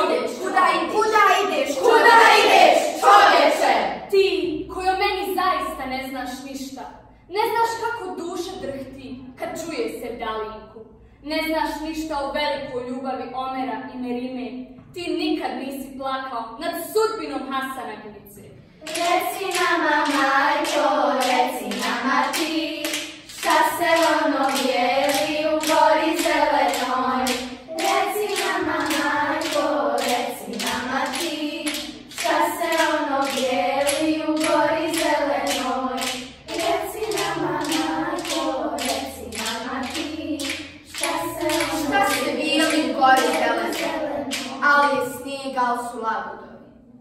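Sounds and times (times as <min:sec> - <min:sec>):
children chanting in unison: 0:01.1 - 0:04.1, 0:18.8 - 0:45.0
hand claps: 0:18.8 - 0:44.6.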